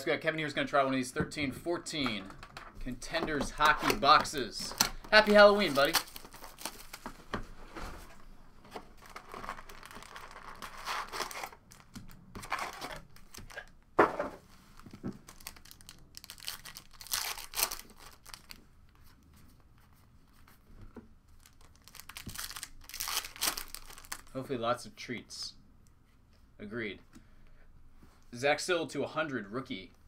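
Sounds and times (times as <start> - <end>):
foil packs crinkling and tearing: 3.6 - 7.1, 8.9 - 13.7, 15.2 - 18.6, 21.4 - 24.3.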